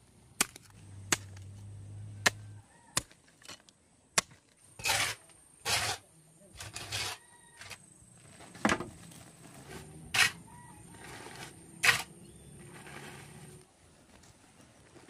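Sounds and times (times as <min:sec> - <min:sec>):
hoe scraping soil: 0:04.8 - 0:13.7.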